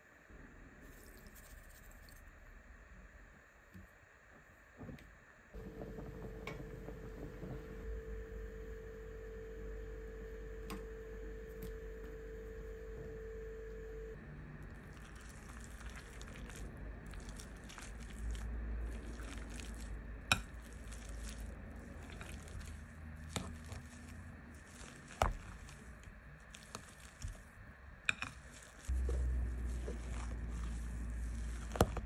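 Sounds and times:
masher squishing potatoes: 14.6s - 32.0s.

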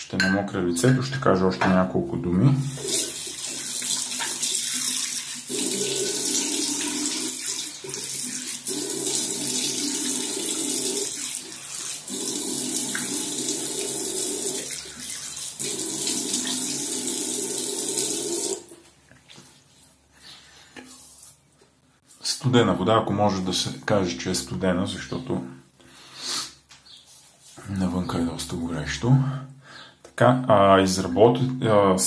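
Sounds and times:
tap water running into sink: 2.7s - 18.8s.

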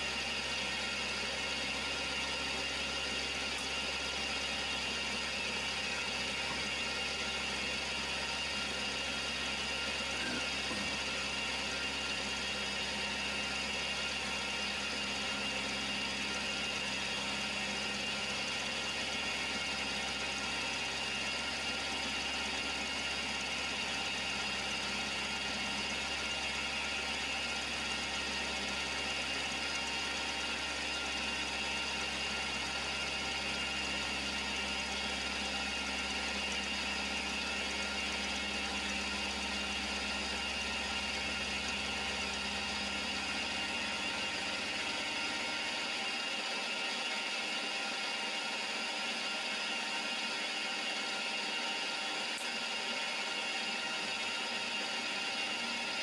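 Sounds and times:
milling machine cutting metal: 9.1s - 29.8s.

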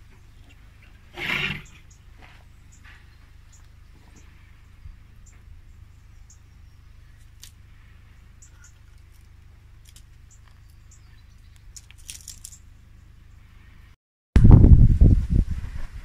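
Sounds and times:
low steady hum: 0.0s - 14.9s
hands handling food clicks: 8.7s - 10.8s, 11.4s - 12.6s.

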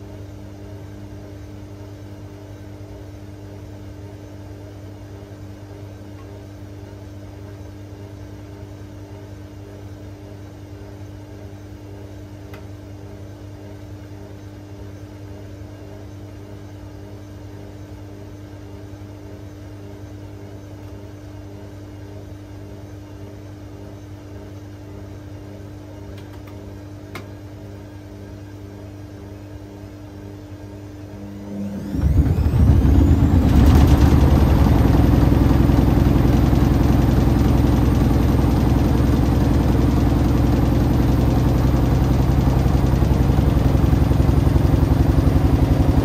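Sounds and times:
washing machine spinning: 30.7s - 46.0s.

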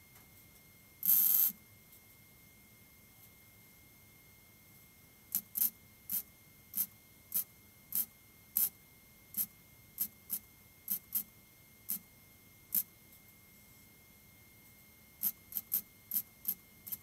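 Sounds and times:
welder zapping in short bursts: 1.0s - 1.6s.

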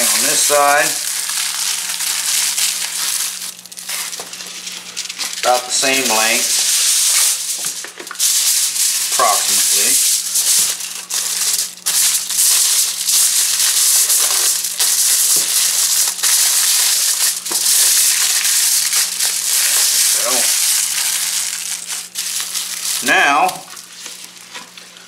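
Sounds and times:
aluminium foil crinkling: 0.0s - 25.0s.

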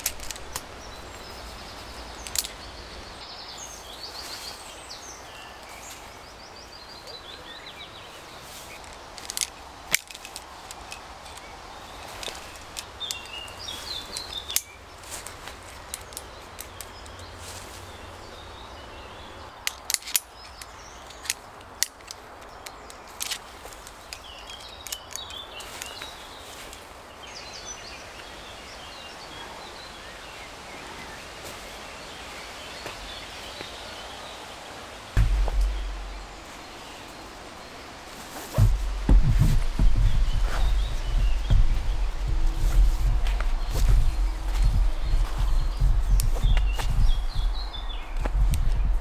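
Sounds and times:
metallic carabiner clicks: 0.0s - 0.7s, 2.2s - 2.6s, 8.8s - 11.5s, 19.6s - 25.4s
birds chirping: 0.0s - 49.0s
heavy low thump: 35.2s - 36.6s, 38.6s - 49.0s.

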